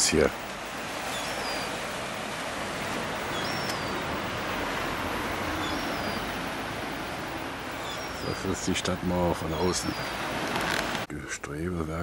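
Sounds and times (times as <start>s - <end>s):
small waves breaking on sand: 0.0s - 11.1s
wind: 0.0s - 12.0s
faint high chirps: 1.0s - 1.8s, 3.2s - 4.1s, 5.5s - 6.4s, 7.7s - 10.2s.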